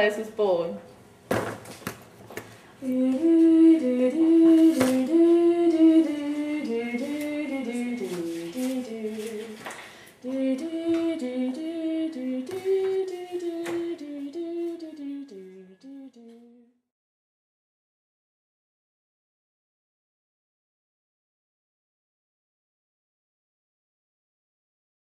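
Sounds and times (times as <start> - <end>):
women singing wordless harmony: 2.8 - 16.6.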